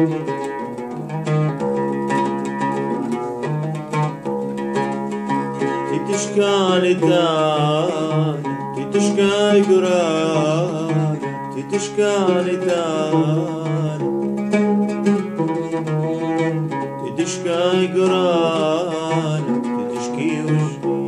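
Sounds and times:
oud being plucked: 0.0s - 21.0s
man singing ornamented melody: 5.3s - 21.0s.

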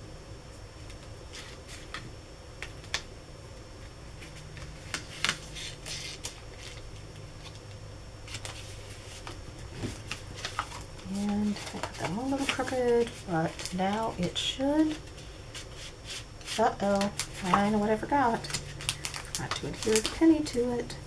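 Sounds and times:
paper rustling: 4.2s - 6.8s, 8.3s - 20.6s.

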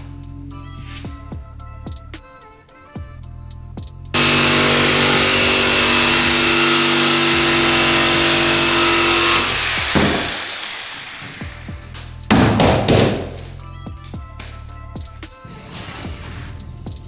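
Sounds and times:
saw knocking on board: 4.2s - 10.6s
jigsaw cutting plywood: 4.2s - 11.5s.

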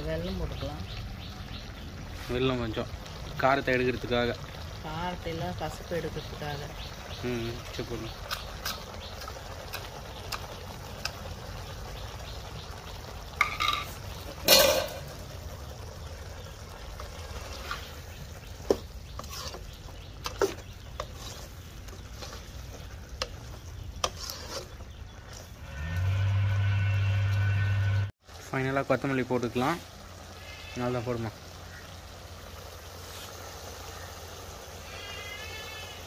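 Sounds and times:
ladle scraping metal pot: 13.3s - 15.2s, 17.0s - 27.8s.

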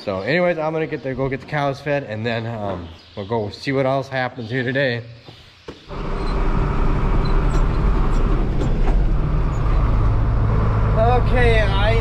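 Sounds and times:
tractor engine running: 5.9s - 12.0s.

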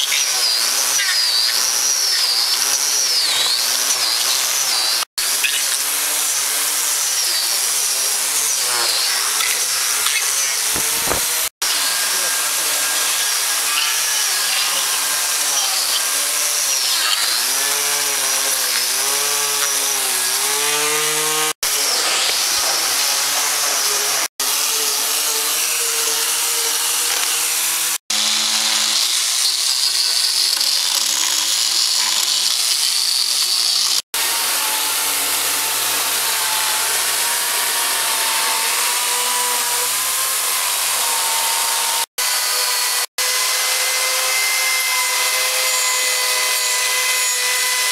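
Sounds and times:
power carving tool cutting wood: 0.0s - 47.9s.

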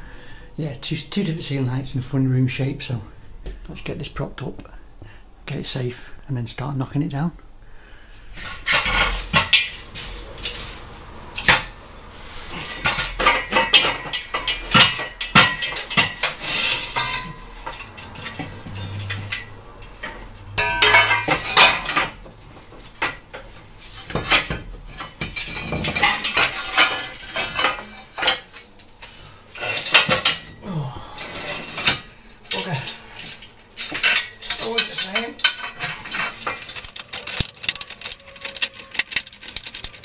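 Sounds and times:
steel tube clinking and clanking: 8.4s - 30.6s, 31.2s - 40.0s.

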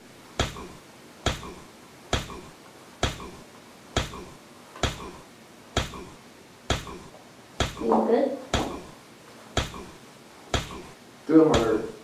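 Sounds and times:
kicks landing with sharp smacks: 0.4s - 3.4s, 4.0s - 5.2s, 5.8s - 6.1s, 6.7s - 7.9s, 8.5s - 8.9s, 9.6s - 11.0s, 11.6s - 11.8s.

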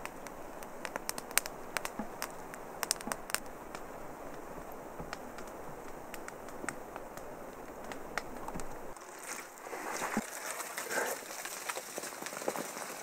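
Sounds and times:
hands digging in wet mud: 9.0s - 13.0s.

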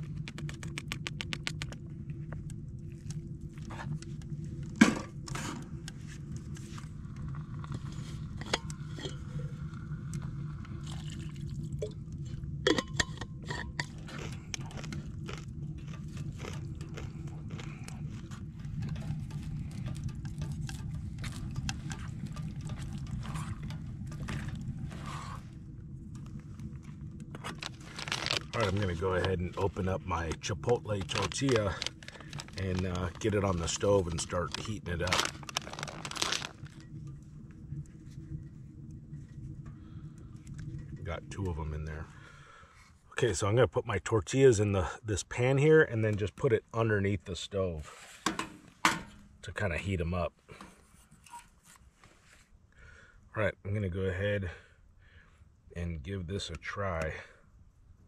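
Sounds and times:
steady low hum: 0.0s - 58.0s
metal cookware clinking: 12.7s - 13.9s
spoon stirring and scraping pot: 18.1s - 25.5s
food squeezed from pouches: 27.5s - 29.2s, 30.9s - 36.7s.

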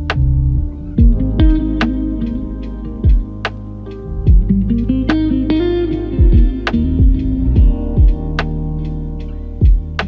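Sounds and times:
lo-fi hip hop music: 0.0s - 10.0s
deep thump: 1.0s - 1.6s, 3.0s - 3.6s, 4.3s - 4.6s, 6.2s - 8.4s, 9.6s - 10.0s.

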